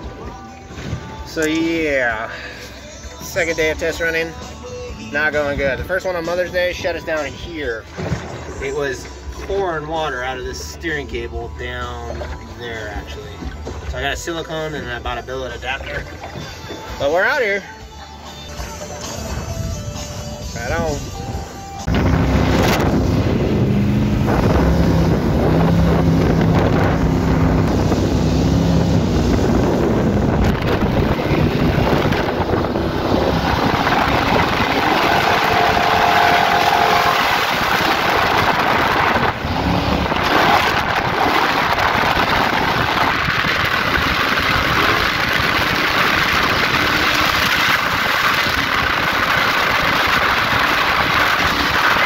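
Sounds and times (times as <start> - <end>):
boat engine running: 0.0 - 52.0
water rushing past hull: 7.8 - 10.7, 20.7 - 52.0
wind on microphone: 21.1 - 52.0.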